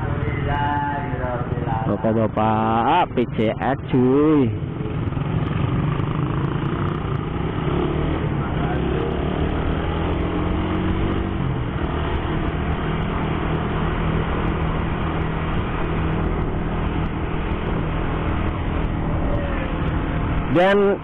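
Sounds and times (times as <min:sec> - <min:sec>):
motorcycle engine running: 0:00.0 - 0:21.0
road noise: 0:00.0 - 0:21.0.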